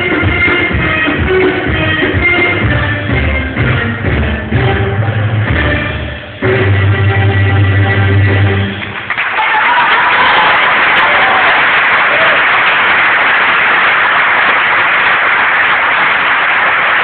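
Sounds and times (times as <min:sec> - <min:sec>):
audience applauding: 0:08.6 - 0:17.0
people cheering: 0:08.8 - 0:17.0.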